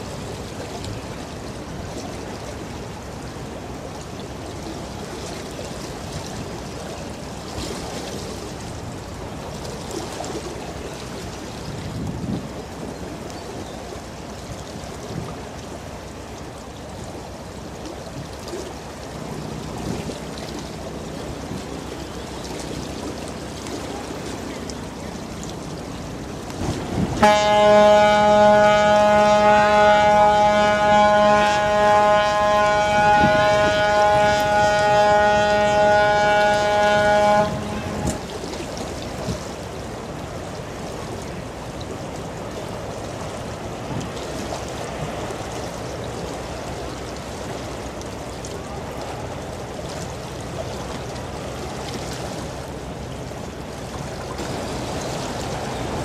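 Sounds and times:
moving water: 0.0s - 56.0s
ship's horn blast: 26.6s - 38.6s.

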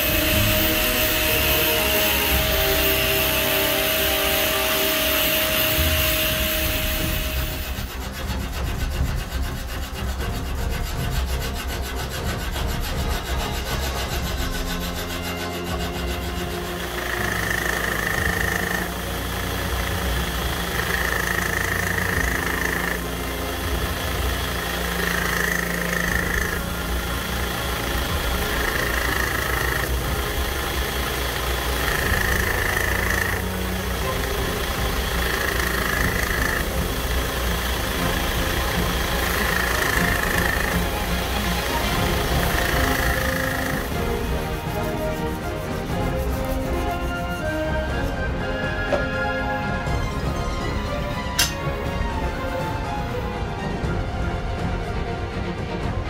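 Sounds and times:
blade grinding rasp: 0.0s - 48.2s
belt grinder motor humming: 0.0s - 50.2s.

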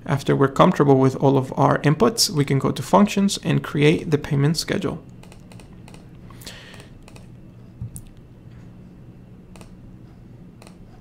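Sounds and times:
low steady hum: 0.0s - 11.0s
computer mouse clicks: 6.7s - 7.3s, 9.5s - 9.8s, 10.6s - 10.9s.

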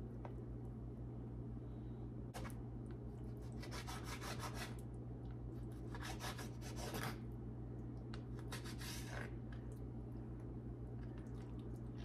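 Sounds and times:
steady low hum: 0.0s - 12.0s
knife sawing on cutting board: 3.6s - 4.7s.

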